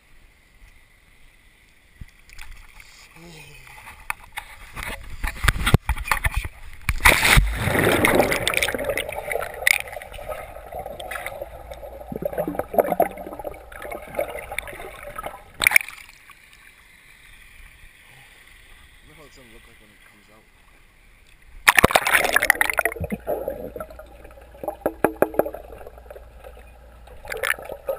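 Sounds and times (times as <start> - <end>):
quiet hiss: 0.0 - 27.9
underwater bubbling and gurgling: 5.0 - 16.4, 21.4 - 27.9
splash into water: 6.9 - 11.4, 21.6 - 23.8.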